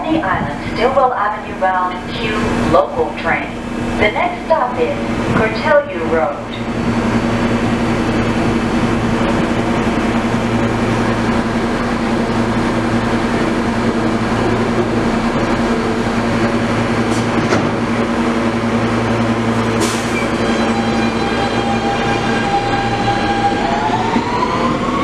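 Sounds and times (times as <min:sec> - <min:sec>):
train ventilation hum: 0:00.0 - 0:23.0
train doors closing hiss: 0:17.0 - 0:17.8, 0:19.7 - 0:20.5.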